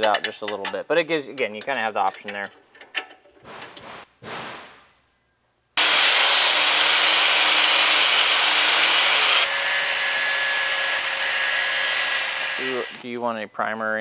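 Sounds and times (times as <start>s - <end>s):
grinder motor hum: 5.8s - 13.0s
wire brush scrubbing metal: 8.8s - 13.0s.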